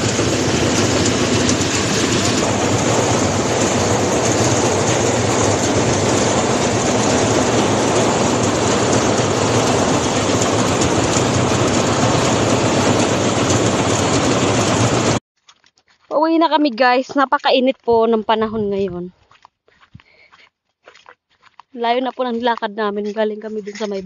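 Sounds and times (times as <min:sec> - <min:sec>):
machine rattling loudly: 0:00.0 - 0:15.2.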